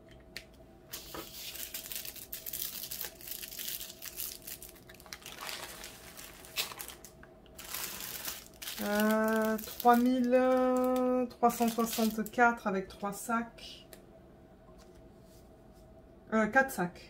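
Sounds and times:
plastic bags crinkling: 0.9s - 12.4s.

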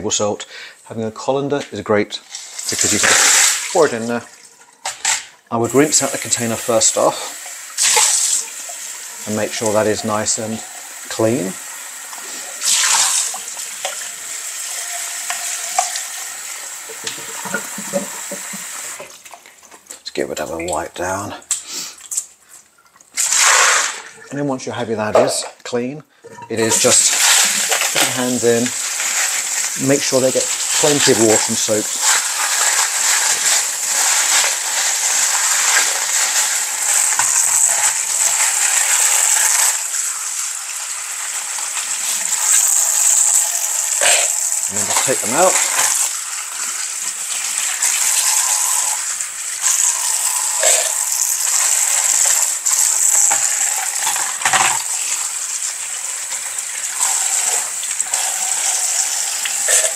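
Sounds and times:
tap water hissing: 1.6s - 24.3s, 26.2s - 59.9s
tap water splashing into sink: 16.9s - 19.4s.

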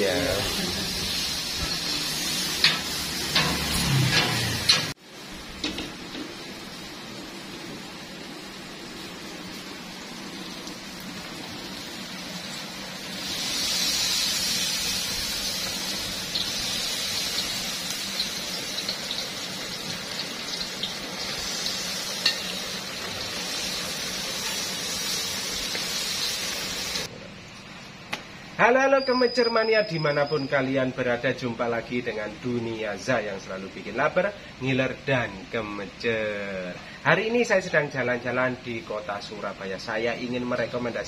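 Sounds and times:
chicken deep-frying in hot oil: 0.0s - 27.1s.

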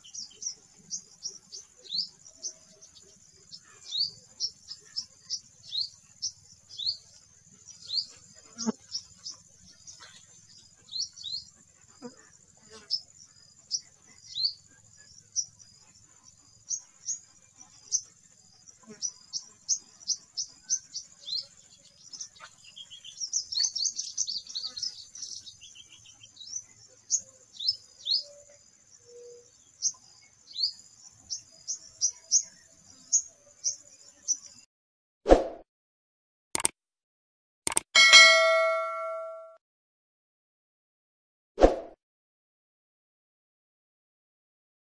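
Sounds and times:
sunbird chirping: 0.0s - 11.6s, 12.8s - 34.6s.

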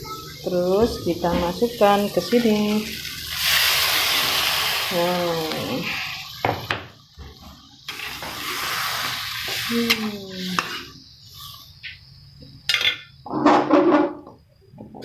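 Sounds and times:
paste sizzling in hot wok: 0.4s - 12.8s
metal spatula stirring and scraping: 7.9s - 11.6s.

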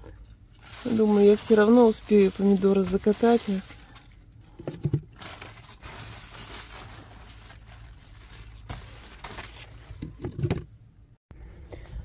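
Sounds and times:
leaves and vines rustling: 0.5s - 4.2s, 5.2s - 9.9s.

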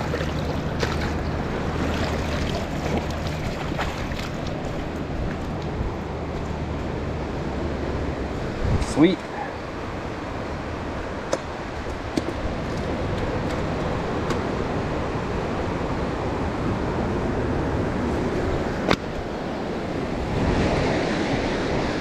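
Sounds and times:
surf washing ashore: 0.0s - 22.0s
wind rumbling on microphone: 0.0s - 22.0s.

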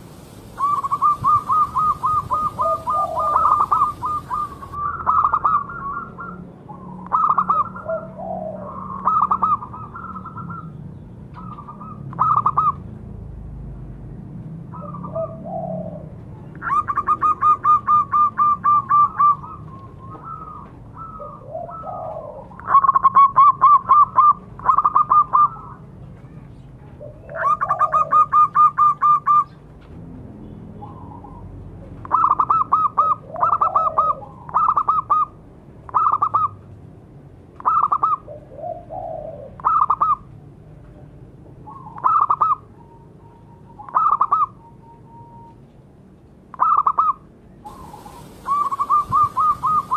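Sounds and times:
dove cooing in trilled phrases: 0.2s - 10.7s, 11.4s - 12.8s, 14.7s - 25.8s, 27.0s - 29.5s, 32.0s - 36.6s, 37.6s - 40.3s, 41.6s - 42.8s, 43.7s - 45.5s, 46.5s - 49.9s.

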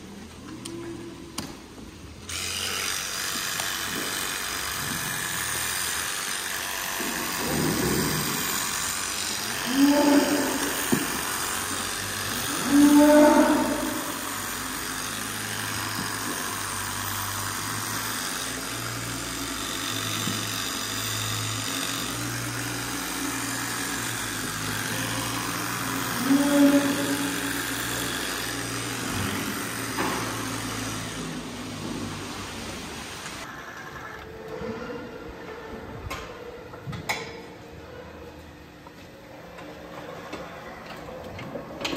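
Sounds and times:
cows mooing: 9.4s - 10.8s, 12.4s - 14.3s, 24.5s - 27.7s.

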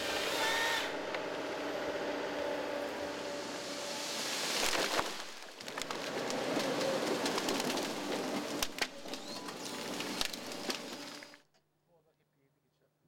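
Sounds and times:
excavator machine noise: 0.0s - 11.4s
logs knocking and cracking: 4.5s - 11.4s.

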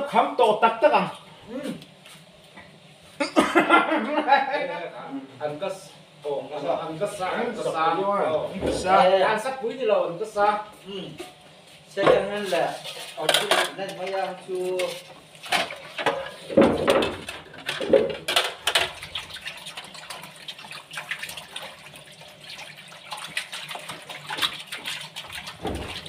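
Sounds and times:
people talking: 0.0s - 1.8s, 3.5s - 11.3s, 12.0s - 15.0s.

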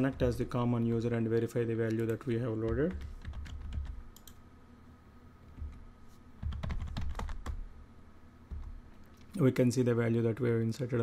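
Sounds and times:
typing on a keyboard: 1.9s - 4.4s, 6.4s - 7.6s.

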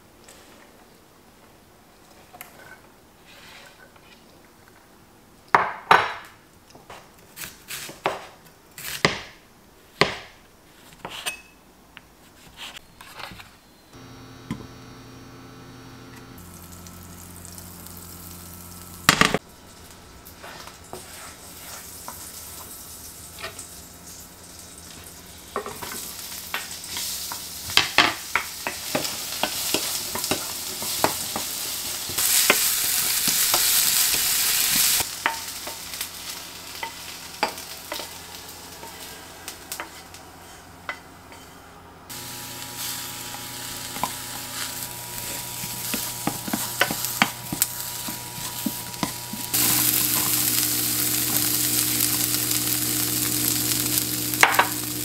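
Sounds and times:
steady hum: 13.9s - 27.9s, 34.3s - 55.0s
onions sizzling in a frying pan: 14.0s - 41.0s, 42.1s - 55.0s
wooden spoon stirring: 44.0s - 50.4s.

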